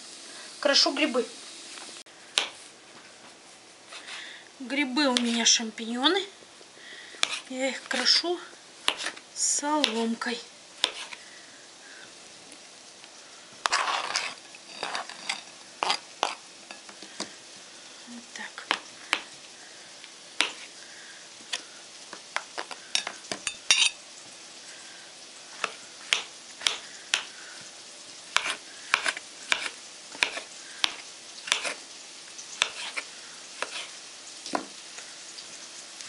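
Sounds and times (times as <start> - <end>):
onion sizzling in oil: 0.0 - 36.0
knife slicing on cutting board: 7.2 - 8.1, 8.8 - 9.2, 10.8 - 11.2, 13.6 - 16.4, 28.4 - 31.8, 32.6 - 34.0.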